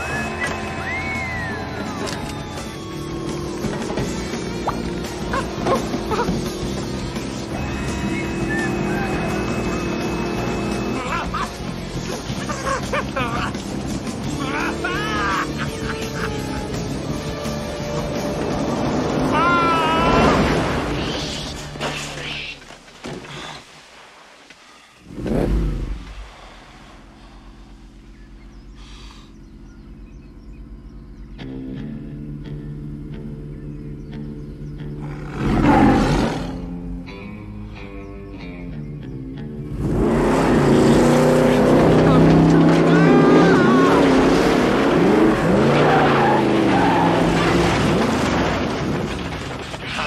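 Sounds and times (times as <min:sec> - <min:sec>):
truck engine revving and idling: 0:00.0 - 0:21.8, 0:25.1 - 0:37.1, 0:39.5 - 0:49.4
tyres skidding and squealing: 0:00.0 - 0:23.7, 0:39.7 - 0:50.0.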